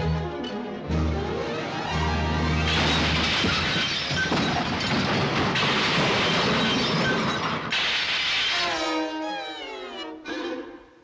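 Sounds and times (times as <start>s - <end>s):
orchestral music: 0.0s - 3.2s, 8.5s - 11.0s
cartoon smashing and shattering: 2.6s - 8.8s.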